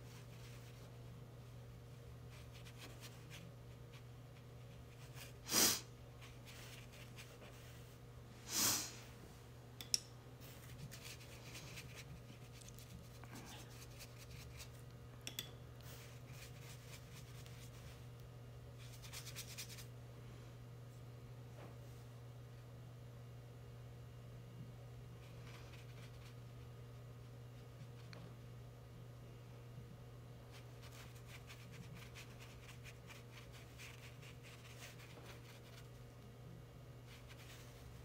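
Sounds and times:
low steady hum: 0.0s - 38.0s
brush scratching on paper: 6.2s - 7.9s, 10.5s - 14.8s, 15.9s - 18.0s, 30.5s - 36.0s.

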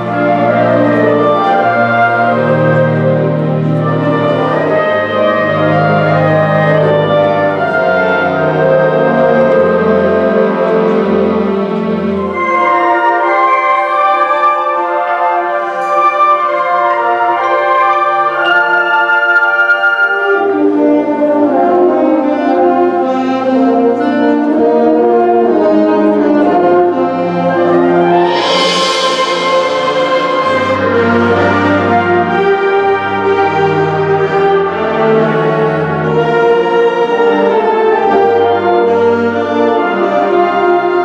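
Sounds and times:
band playing brass chords: 0.0s - 41.0s
cymbal crash: 27.9s - 31.8s.

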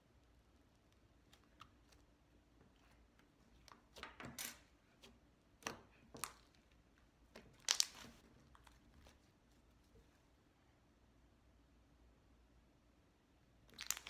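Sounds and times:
slime crackling and popping: 7.4s - 8.2s, 13.7s - 14.0s.

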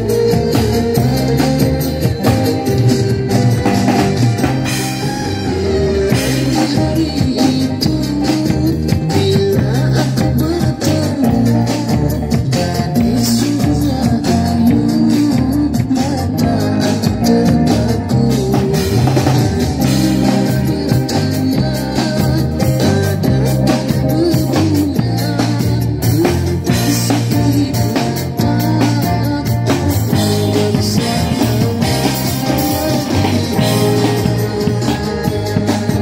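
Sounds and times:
bass lines: 0.0s - 36.0s
drum kit: 0.0s - 36.0s
electric guitar through amp: 0.0s - 36.0s.

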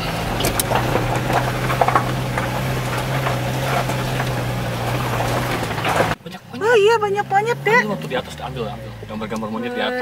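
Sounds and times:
tyres crunching over rocks: 0.0s - 6.2s
car engine droning: 0.0s - 10.0s.

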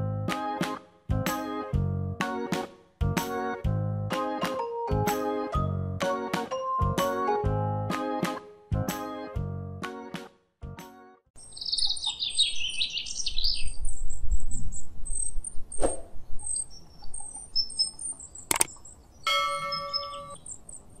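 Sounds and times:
small birds chirping: 11.4s - 21.0s
sharp click: 18.5s - 18.8s
short bell-like chime: 19.3s - 20.4s.

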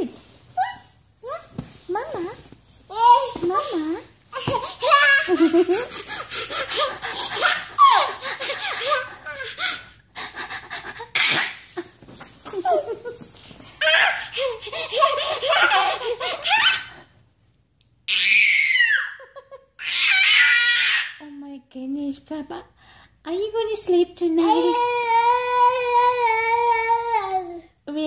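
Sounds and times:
toddler belly laughing: 4.4s - 10.0s, 13.8s - 17.0s.

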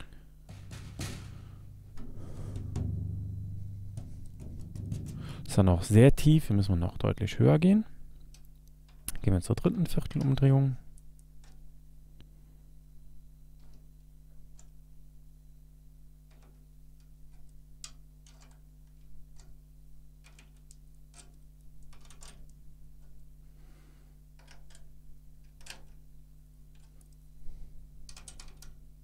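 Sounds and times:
low electrical hum: 0.0s - 29.0s
drum key clicking on snare drum: 0.5s - 5.6s.

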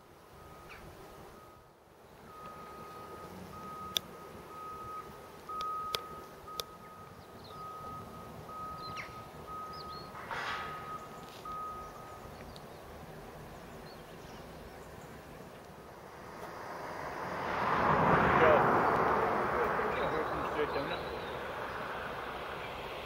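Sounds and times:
electronic beeper short beeps: 4.6s - 12.2s
faint bird chirps: 5.6s - 15.2s.

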